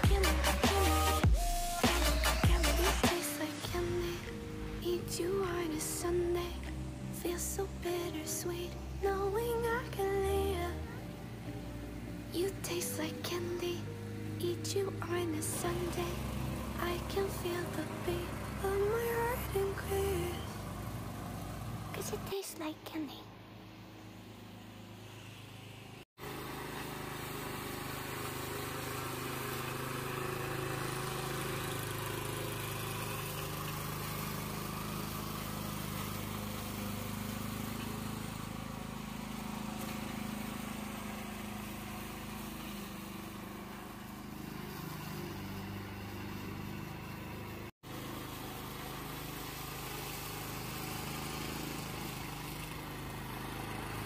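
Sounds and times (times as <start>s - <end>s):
lawn mower engine cutting grass: 0.0s - 54.0s.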